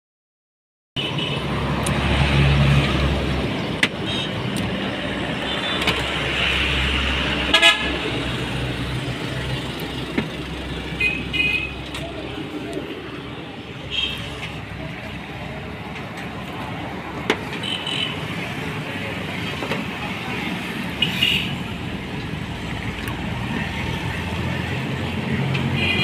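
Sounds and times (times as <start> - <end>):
traffic engine and road rumble: 1.0 - 26.0
vehicle horn toots: 7.5 - 7.9.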